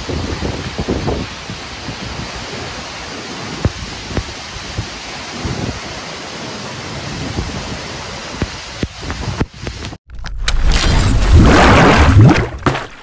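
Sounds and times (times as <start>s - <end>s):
waterfall rushing: 0.0s - 9.1s
wind knocking on microphone: 3.5s - 5.8s, 7.2s - 10.0s.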